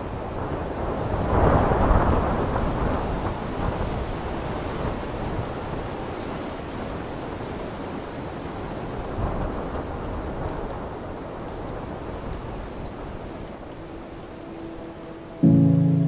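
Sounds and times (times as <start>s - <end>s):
wind and sea rushing: 0.0s - 16.0s.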